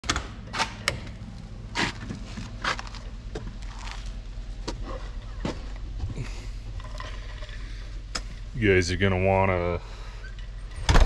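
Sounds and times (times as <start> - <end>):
low steady hum: 0.0 - 11.0
footsteps: 1.7 - 6.3.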